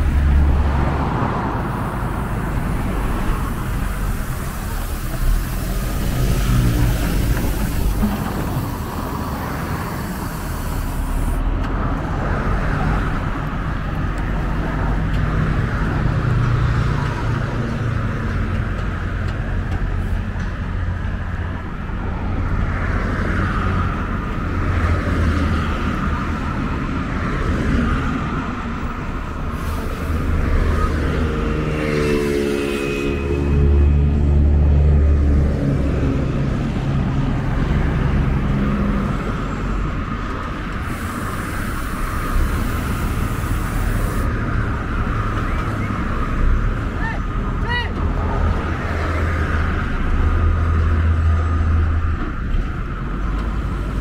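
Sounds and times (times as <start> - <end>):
road traffic passing: 0.0 - 54.0
diesel truck engine idling: 1.6 - 11.4.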